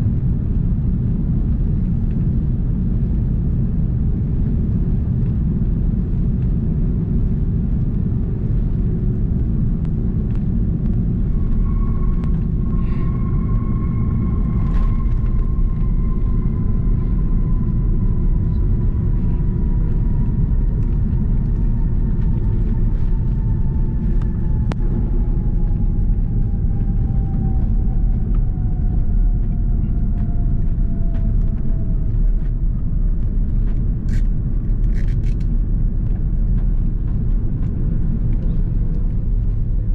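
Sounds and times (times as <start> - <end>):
jet engine whine falling: 0.0 - 39.9
wheels rumbling on runway: 0.0 - 39.9.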